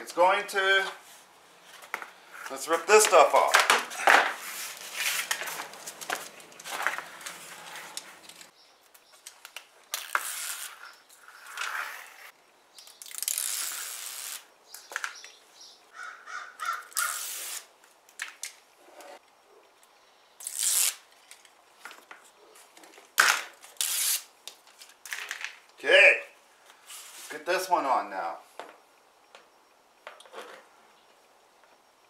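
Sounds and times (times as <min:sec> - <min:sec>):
rustling: 0:00.8 - 0:12.3
liner peeling off adhesive tape: 0:12.8 - 0:14.5, 0:16.8 - 0:17.7, 0:20.4 - 0:21.5, 0:23.6 - 0:24.3.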